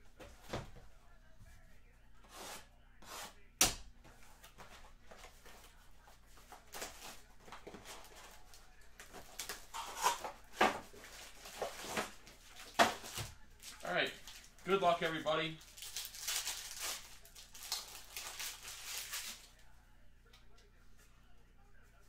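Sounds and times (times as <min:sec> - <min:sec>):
plastic wrap crinkling and tearing: 0:06.7 - 0:19.6.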